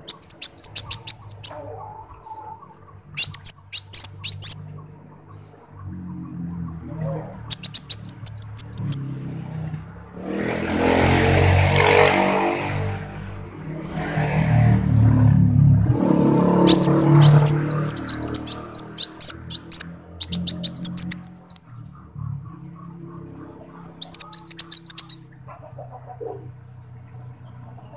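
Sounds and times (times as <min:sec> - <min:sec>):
sunbird twittering song: 0:00.0 - 0:01.6, 0:03.2 - 0:04.6, 0:07.5 - 0:09.1, 0:16.6 - 0:21.7, 0:24.0 - 0:25.2.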